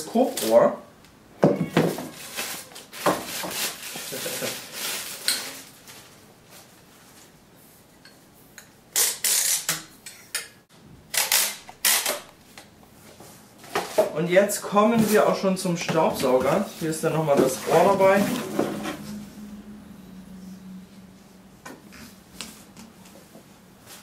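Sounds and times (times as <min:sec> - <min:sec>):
plastic wrapping rustling: 0:01.9 - 0:07.4.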